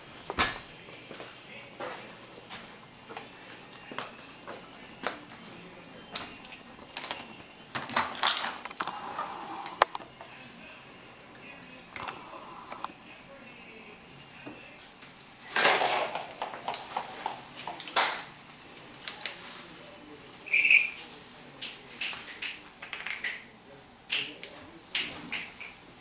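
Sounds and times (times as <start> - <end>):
plastic parts clattering on tile: 6.9 - 9.0, 15.5 - 18.2.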